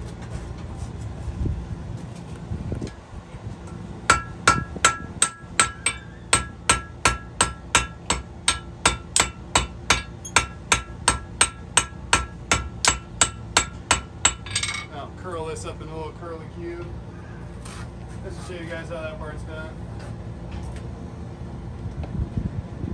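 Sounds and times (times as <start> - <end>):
hammer striking steel on anvil: 4.1 - 14.9.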